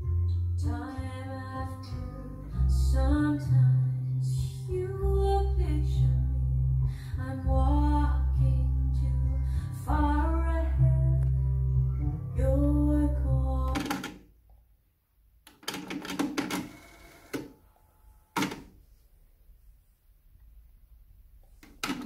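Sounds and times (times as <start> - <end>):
bass line: 0.0 - 13.8
guitar: 0.0 - 14.2
woman singing: 0.3 - 11.3, 12.3 - 14.0.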